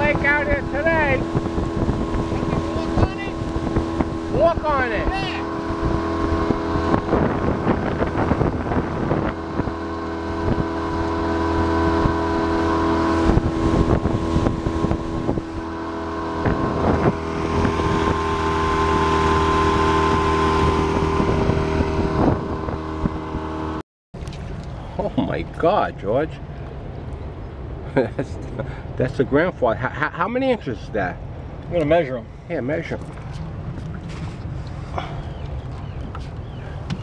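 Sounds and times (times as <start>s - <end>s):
water splashing against hull: 0.0s - 25.2s, 32.9s - 37.0s
wind buffeting microphone: 0.0s - 27.9s, 32.4s - 37.0s
boat motor running: 0.0s - 29.5s, 31.1s - 37.0s.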